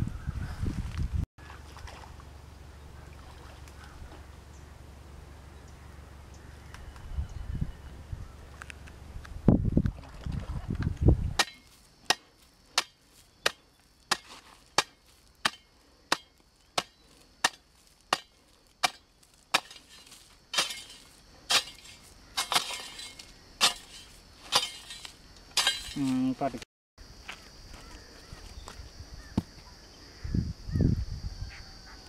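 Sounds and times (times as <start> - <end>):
wading in shallow water: 1.4 - 4.4, 9.9 - 10.8
hoe scraping earth: 11.4 - 26.3
metal hoe chopping dry soil: 11.4 - 26.3.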